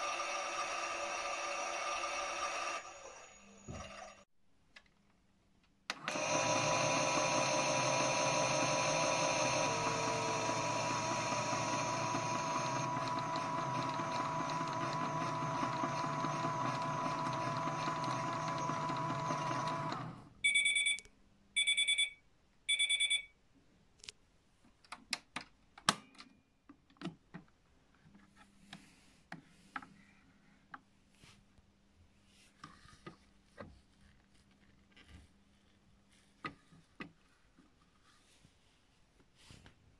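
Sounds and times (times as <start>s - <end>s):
small motor whine and hum: 0.0s - 4.2s, 6.1s - 20.2s
short high beeps: 20.4s - 23.3s.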